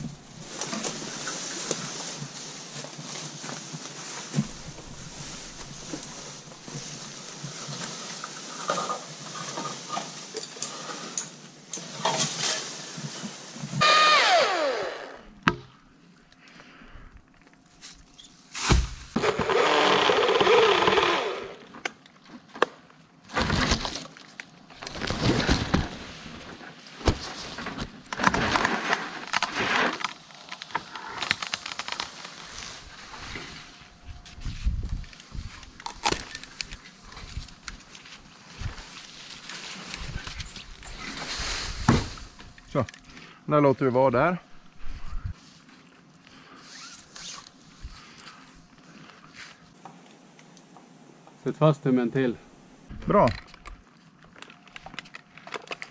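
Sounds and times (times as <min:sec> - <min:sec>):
wood cracking and breaking: 0:23.2 - 0:32.6.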